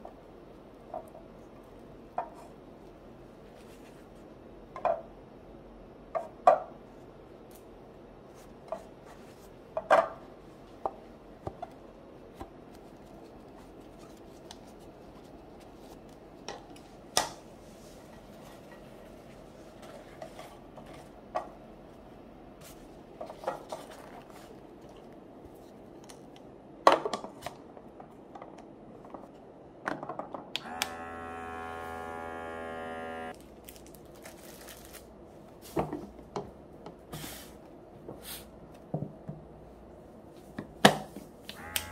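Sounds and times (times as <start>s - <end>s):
small motor humming: 30.6s - 33.4s, 41.6s - 41.9s.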